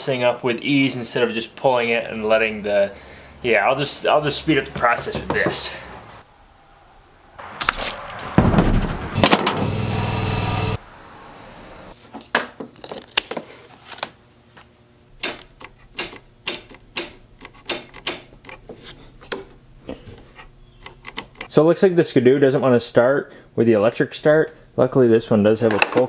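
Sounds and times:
loud mechanical whir: 8.3 - 10.8
metallic clicks and knocks: 15.2 - 18.6.

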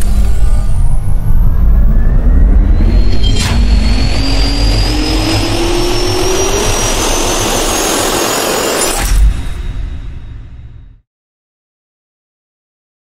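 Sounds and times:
jet turbine spooling up: 0.0 - 10.3.

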